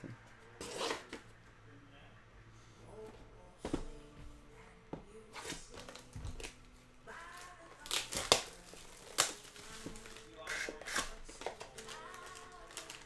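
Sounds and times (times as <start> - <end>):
faint anthem singing from tv: 0.0 - 13.0
cards and wrappers clicking rustling: 7.2 - 13.0.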